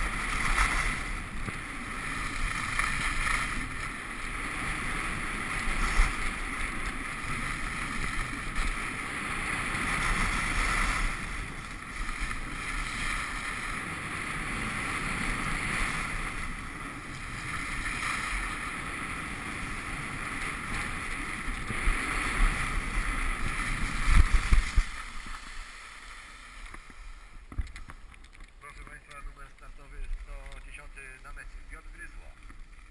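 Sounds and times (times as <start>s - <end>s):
skis scraping on packed snow: 0.0s - 32.9s.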